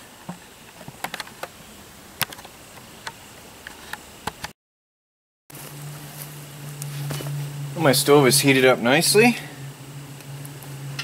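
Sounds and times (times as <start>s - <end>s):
wood crackling in a stove: 5.6s - 11.0s.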